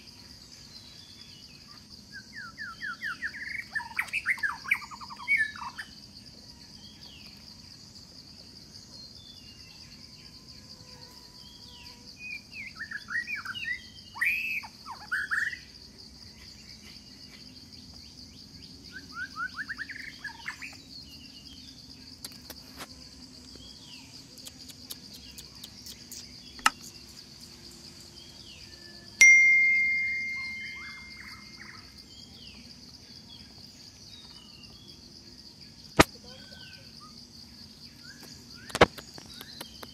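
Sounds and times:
insect drone: 0.0 - 39.9
short chirping calls: 24.1 - 27.7, 28.6 - 32.0
sharp click: 26.6 - 26.9, 38.6 - 39.9
loud ringing tone: 29.2 - 31.6.

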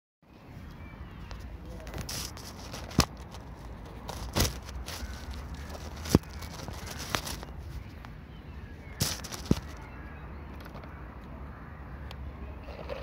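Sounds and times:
gravel stones clicking: 1.8 - 8.2, 9.0 - 11.0.

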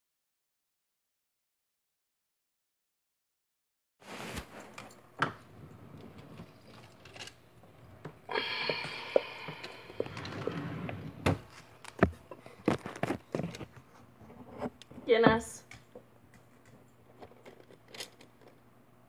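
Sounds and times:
wooden drawer sliding: 9.6 - 11.7.

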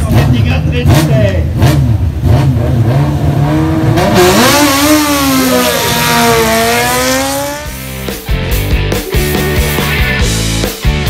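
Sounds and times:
motorcycle engine accelerating: 0.0 - 8.3.

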